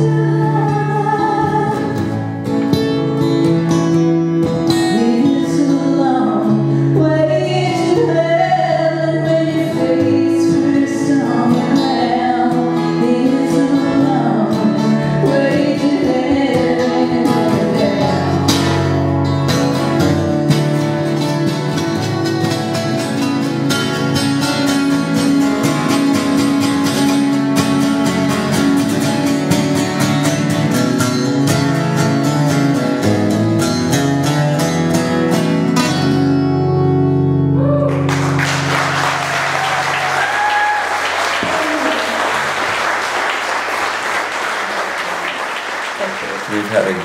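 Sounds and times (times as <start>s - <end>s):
strummed acoustic guitar song: 0.0s - 40.2s
audience applauding: 37.8s - 47.0s.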